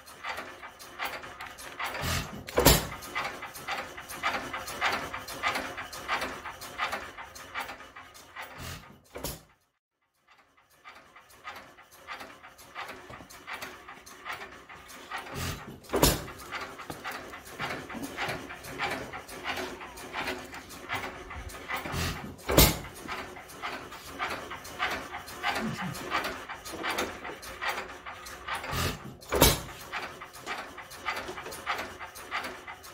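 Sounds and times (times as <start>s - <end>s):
engine ticking over: 0.0s - 9.3s, 10.8s - 32.9s
engine firing with sharp bang: 2.0s - 3.2s, 15.4s - 16.6s, 21.7s - 23.2s
dog panting: 12.8s - 29.0s.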